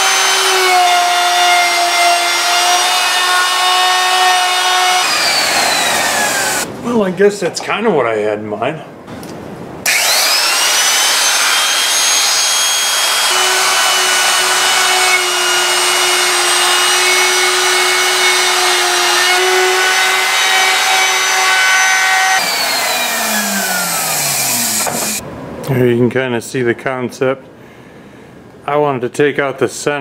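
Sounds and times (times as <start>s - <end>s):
electric router whining: 0.0s - 6.7s, 9.9s - 25.2s.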